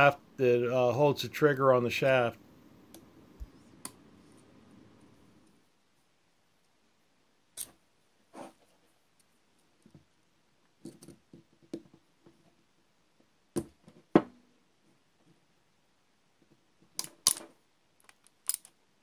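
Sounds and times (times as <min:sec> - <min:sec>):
metal tools clicking on metal: 0:18.4 - 0:18.8.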